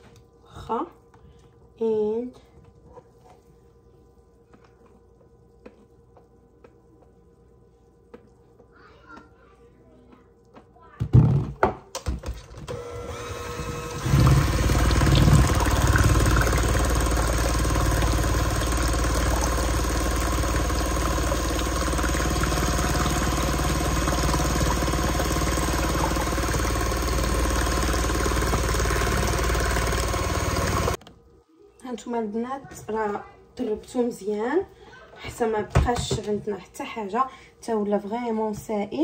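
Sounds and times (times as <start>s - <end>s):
electric hand mixer whirring: 12.7s - 31.0s.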